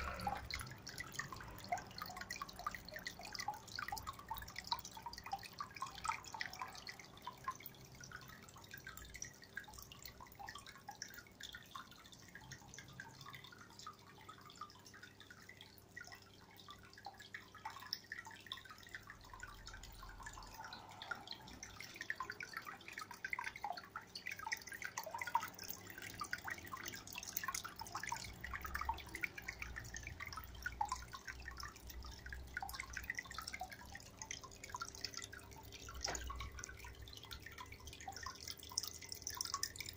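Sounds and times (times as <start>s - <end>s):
faint pump hum: 0.0s - 39.9s
water trickling into tank: 0.0s - 39.9s.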